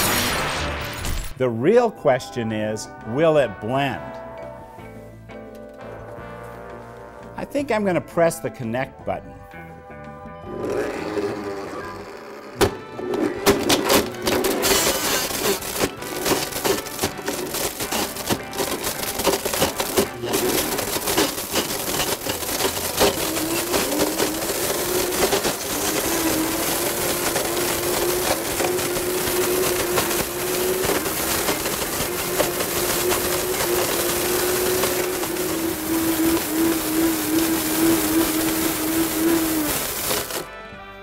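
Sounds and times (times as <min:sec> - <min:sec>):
blender whirring: 0:10.4 - 0:40.6
hard plastic clattering in blender: 0:10.6 - 0:40.6.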